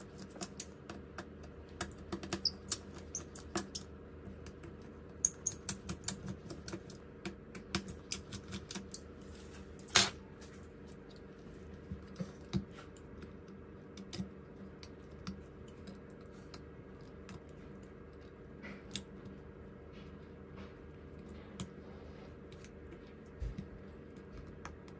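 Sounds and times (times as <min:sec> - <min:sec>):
faint steady hum: 0:00.0 - 0:24.9
metal tools clicking and tapping: 0:00.1 - 0:09.2.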